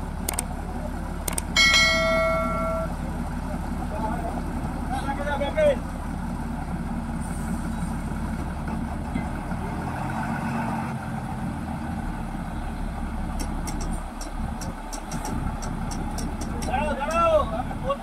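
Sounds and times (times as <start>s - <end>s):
engine humming: 0.0s - 18.0s
sharp high clicks: 1.3s - 1.5s.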